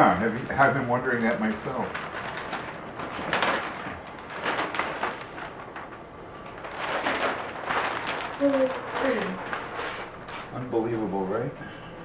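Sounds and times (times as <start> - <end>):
plastic film rustling: 0.0 - 11.6.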